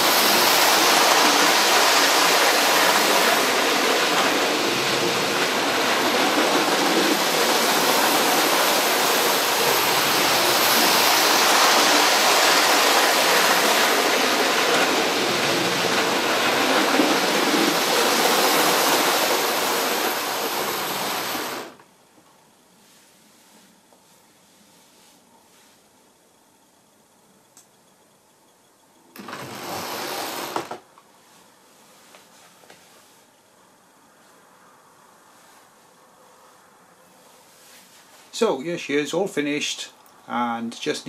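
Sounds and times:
model train running on track: 0:00.0 - 0:21.8.

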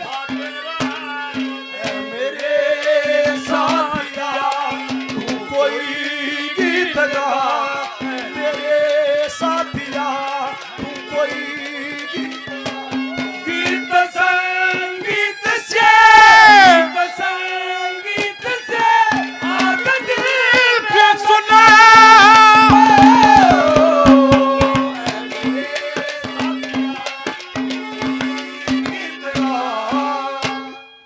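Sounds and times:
wavering folk melody: 0:00.0 - 0:31.0
hand drum strokes: 0:02.9 - 0:05.8, 0:18.2 - 0:30.7.

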